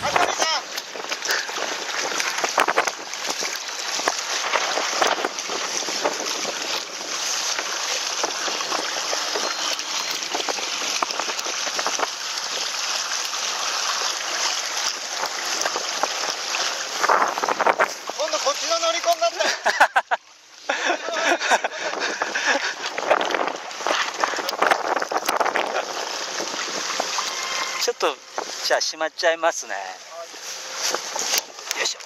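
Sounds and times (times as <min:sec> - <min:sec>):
short water splashes: 0:00.0 - 0:32.0
water rushing along hulls: 0:00.0 - 0:32.0.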